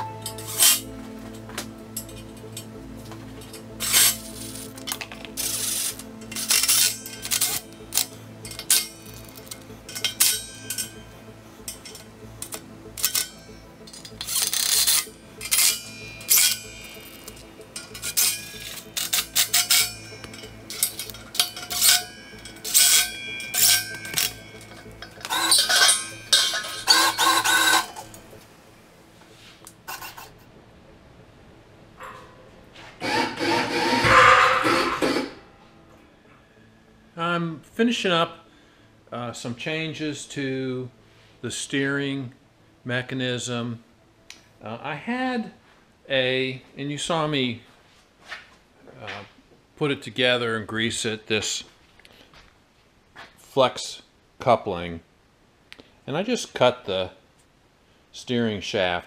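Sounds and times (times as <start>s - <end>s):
metallic clanks of steel parts: 0.0s - 28.5s, 32.0s - 35.5s
background music: 0.0s - 48.4s
cordless impact driver bursts: 33.0s - 35.3s.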